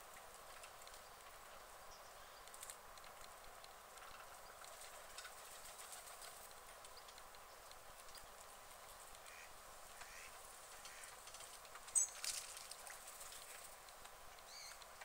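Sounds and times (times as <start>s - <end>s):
background hiss: 0.0s - 15.0s
ducks quacking softly: 9.2s - 11.2s.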